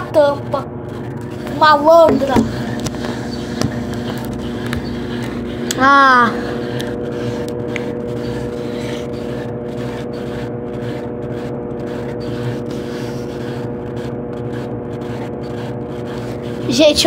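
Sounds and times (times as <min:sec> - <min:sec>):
washing machine spinning: 0:00.0 - 0:17.0.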